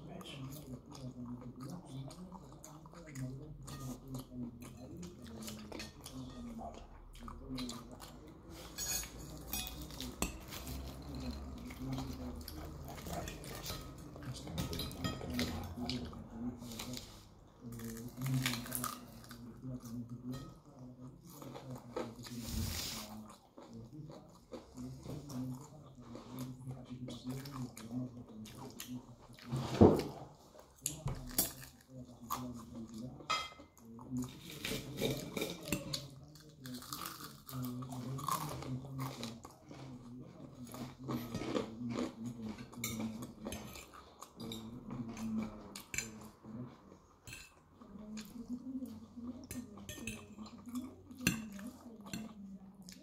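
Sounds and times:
person chewing food: 9.8 - 20.2, 20.9 - 29.5, 33.9 - 53.0
fork scraping on a plate: 29.4 - 30.2.

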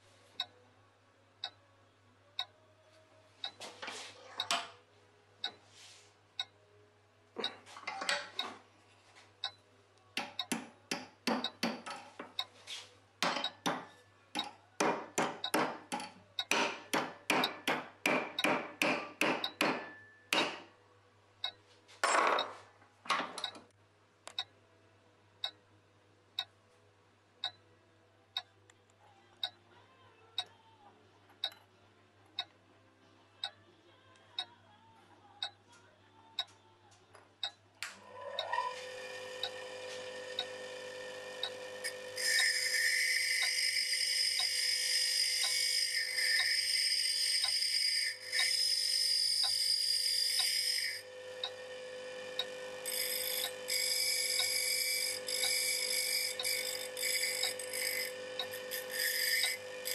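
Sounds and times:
small hammer tapping metal: 10.2 - 12.4, 13.2 - 20.7
clock ticking: 16.4 - 16.7, 24.3 - 24.5, 27.4 - 27.6, 40.4 - 40.6, 41.4 - 51.6.

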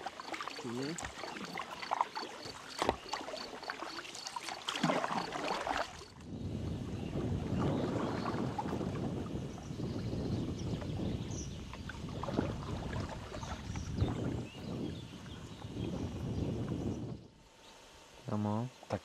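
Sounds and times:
paddle strokes splashing: 0.0 - 6.2, 7.2 - 9.6, 10.7 - 15.8.

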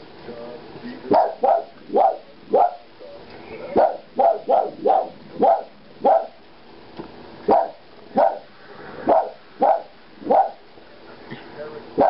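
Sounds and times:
dog barking: 1.1 - 2.9, 3.8 - 6.4, 7.5 - 8.5, 9.1 - 10.6.

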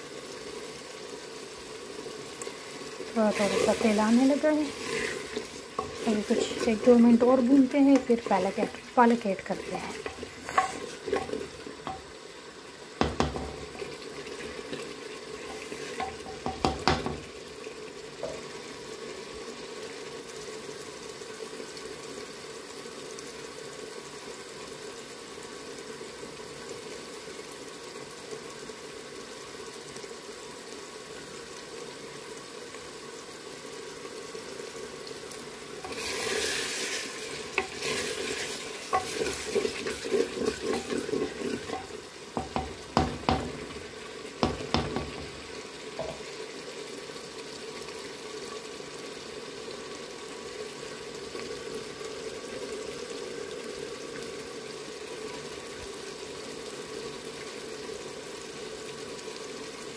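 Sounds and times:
chicken sizzling in oil: 0.0 - 59.9
spoon knocking against pot: 13.0 - 13.8, 16.0 - 17.3, 41.7 - 43.8, 44.4 - 45.4, 46.0 - 46.2.

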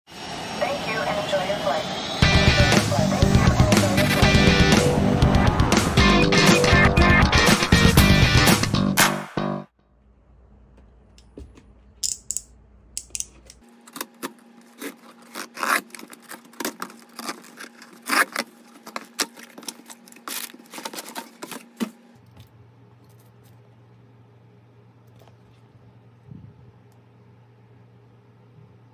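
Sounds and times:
utility knife cutting cardboard: 13.9 - 21.7
cardboard box rustling: 14.2 - 22.0.

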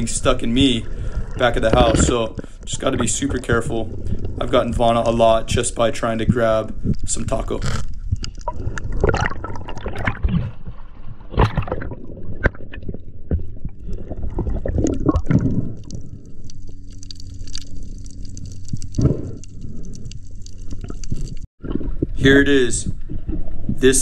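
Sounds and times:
steady low hum: 0.0 - 9.6, 13.1 - 21.5
gurgling bubbles underwater: 0.0 - 22.2
water movement: 0.0 - 24.0.

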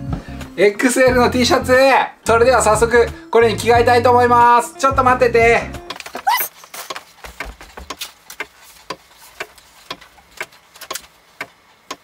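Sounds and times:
clock ticking: 4.9 - 12.0.

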